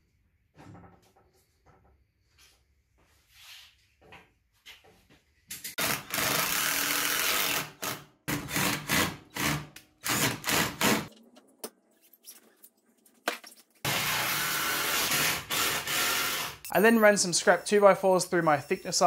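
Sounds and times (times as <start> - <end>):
cordless drill driving screws: 5.8 - 11.1, 13.9 - 16.7.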